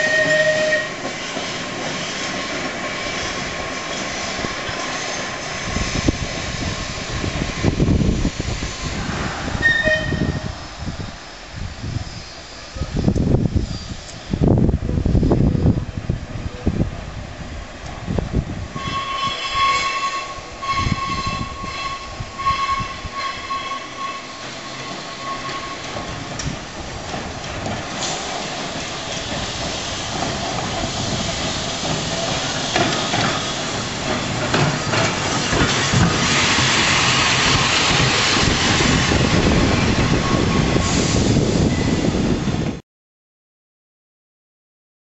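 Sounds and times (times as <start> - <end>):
tram whistle: 0.0 - 2.3, 9.5 - 10.7, 18.7 - 26.3, 36.2 - 42.3
steel wheels rumbling on rail: 0.0 - 42.8
wheels clicking over rail joints: 22.7 - 39.3.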